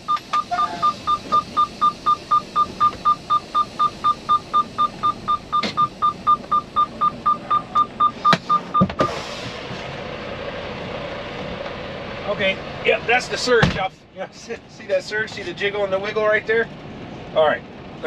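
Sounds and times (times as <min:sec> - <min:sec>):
truck reverse warning beeper: 0:00.0 - 0:09.2.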